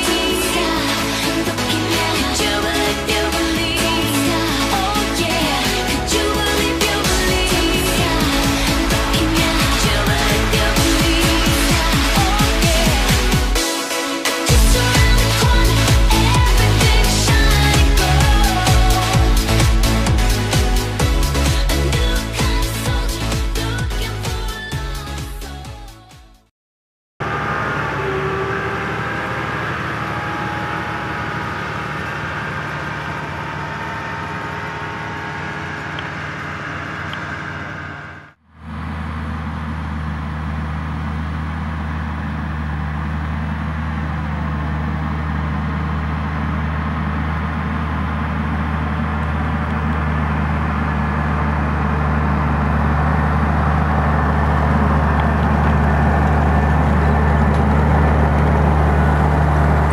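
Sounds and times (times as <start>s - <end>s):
tractor diesel engine under load: 0.0s - 25.6s, 27.2s - 59.9s
tractor engine low drone: 0.0s - 25.6s, 27.2s - 59.9s
faint engine whine: 27.2s - 59.9s.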